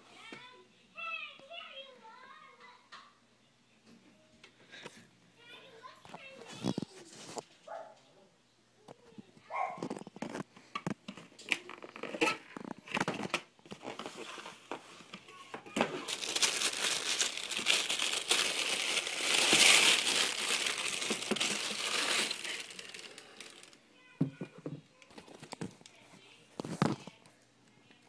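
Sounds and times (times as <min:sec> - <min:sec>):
tissue paper crinkling: 0:15.8 - 0:23.8.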